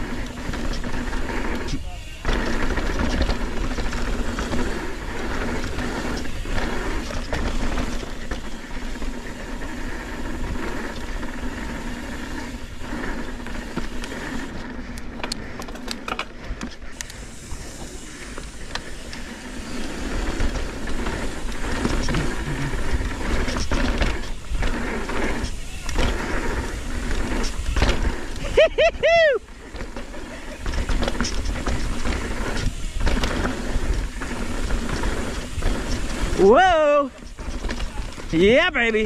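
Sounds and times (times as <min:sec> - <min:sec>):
bike rattling: 0:00.0 - 0:39.0
tyres rolling over dirt: 0:00.0 - 0:39.0
sharp clattering ticks: 0:13.4 - 0:19.3.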